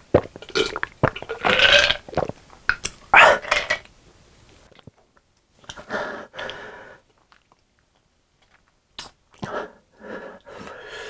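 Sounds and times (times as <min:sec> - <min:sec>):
breathy exhale: 0:09.5 - 0:11.0.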